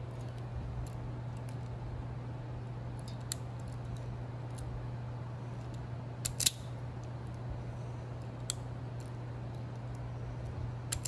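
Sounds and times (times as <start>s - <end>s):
steady low hum: 0.0s - 11.0s
wire strippers clicking: 8.2s - 11.0s.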